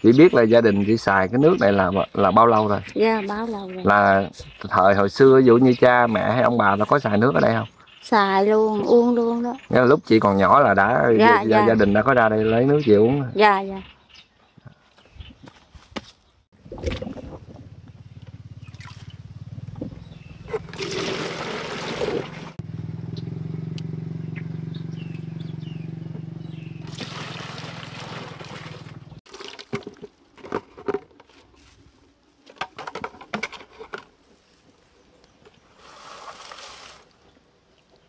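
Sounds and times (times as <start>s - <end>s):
water pouring and splashing: 16.6s - 17.6s, 18.7s - 19.2s, 20.5s - 22.6s, 26.8s - 30.5s, 35.8s - 38.0s
knocks and clatter: 32.5s - 34.1s.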